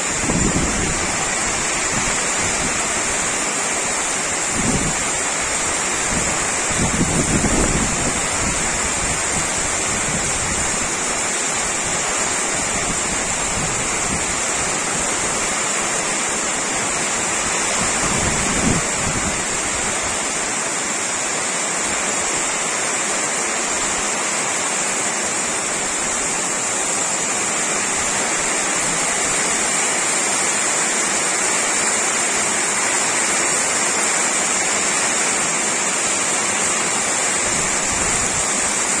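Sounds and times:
strong wind gusts: 0.0 - 20.5, 37.2 - 39.0
heavy rain: 0.0 - 39.0.

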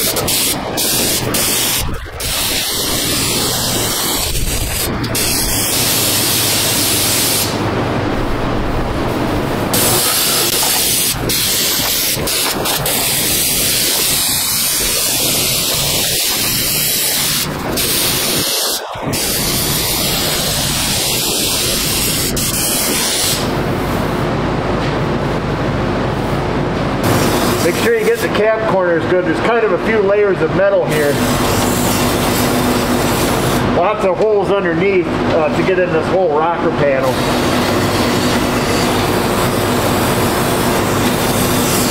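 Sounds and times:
spray gun hissing: 0.0 - 7.6, 9.7 - 23.5.

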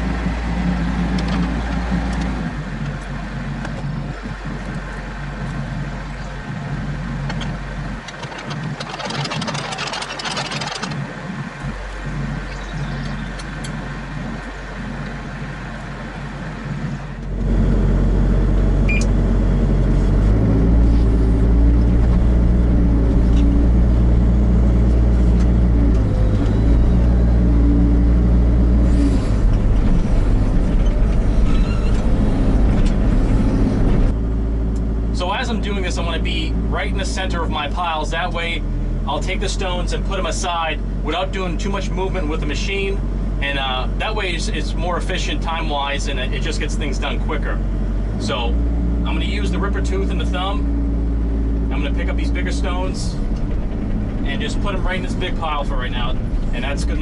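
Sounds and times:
excavator diesel engine: 0.0 - 57.0
short scraping rattle: 7.3 - 11.1, 52.4 - 57.0.

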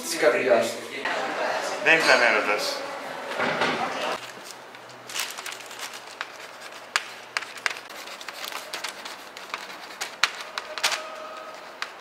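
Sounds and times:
paper crinkling: 4.2 - 12.0
pen scratching on paper: 6.1 - 12.0.

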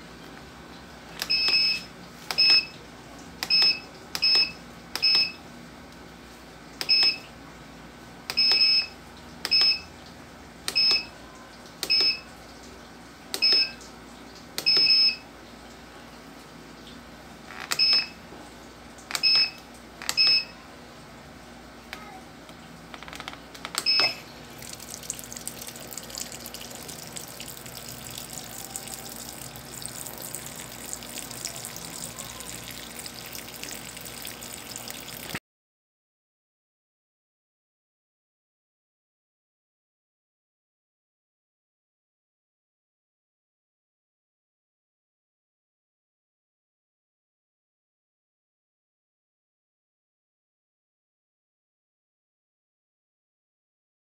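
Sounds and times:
water pouring into tub: 24.4 - 35.4.

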